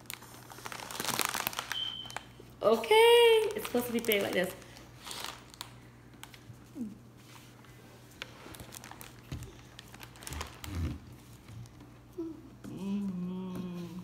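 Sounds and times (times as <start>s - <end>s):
foil balloon crinkling: 0.0s - 2.3s, 3.2s - 6.6s, 7.4s - 11.8s.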